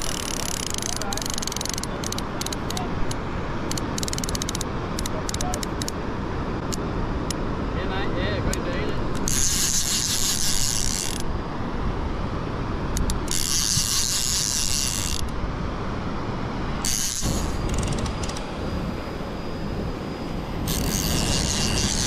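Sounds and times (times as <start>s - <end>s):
fishing reel gears whirring: 0.0s - 6.0s, 8.6s - 11.3s, 12.9s - 15.4s, 16.8s - 22.0s.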